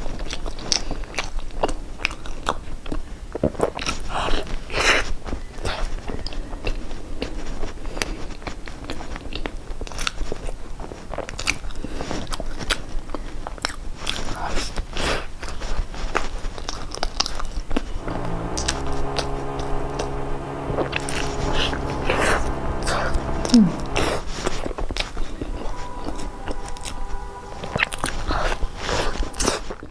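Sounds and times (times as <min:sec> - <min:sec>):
mouth chewing bread: 0:00.0 - 0:17.9.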